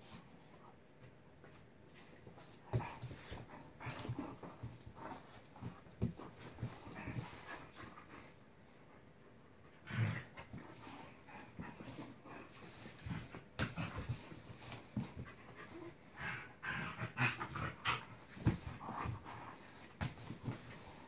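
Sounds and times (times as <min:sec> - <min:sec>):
dogs scuffling: 0:01.5 - 0:08.3, 0:17.4 - 0:21.0
dog panting: 0:02.7 - 0:21.0.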